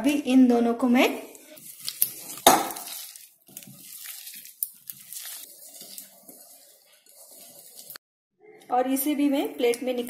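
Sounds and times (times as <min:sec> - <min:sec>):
vegetables tossed in a bowl: 0:01.6 - 0:08.0.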